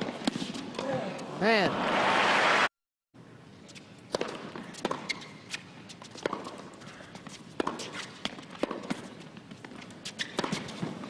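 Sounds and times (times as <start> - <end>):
tennis ball hits and bounces: 0.0 - 1.0, 4.1 - 11.0.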